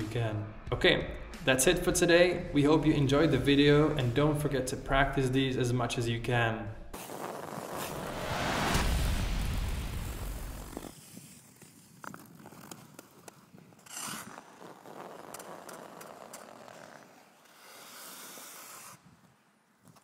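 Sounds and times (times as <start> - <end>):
short swish: 6.9 - 9.2.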